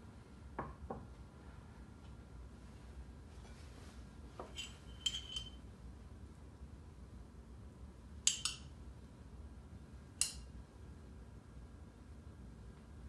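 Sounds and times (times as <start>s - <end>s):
tableware clinking on counter: 4.4s - 5.6s.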